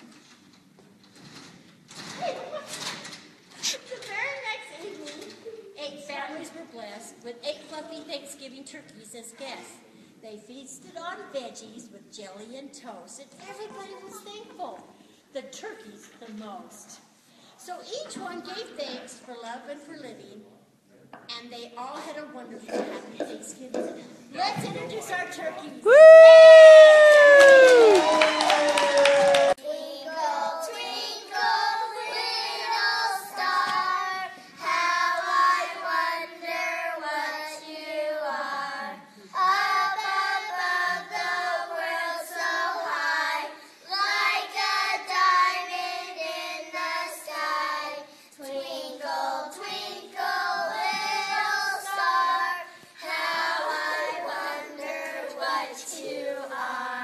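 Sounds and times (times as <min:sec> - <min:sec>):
children singing together: 0:29.4 - 0:57.0.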